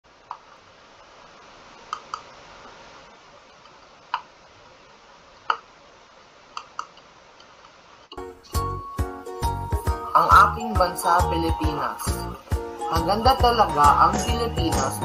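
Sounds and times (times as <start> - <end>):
faint steady hiss: 0.0 - 15.0
computer mouse clicking: 1.9 - 2.3, 6.5 - 7.8.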